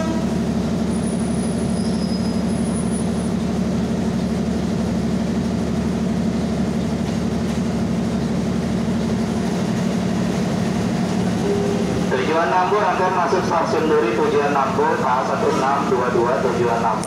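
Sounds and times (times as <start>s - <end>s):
electric train rumbling: 0.0s - 17.0s
faint high squeal: 1.7s - 2.4s.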